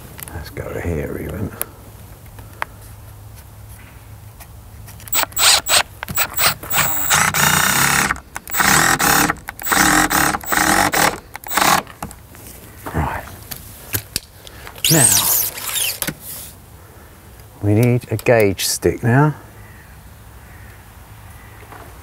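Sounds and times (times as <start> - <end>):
cordless drill whining: 5.1 - 11.9.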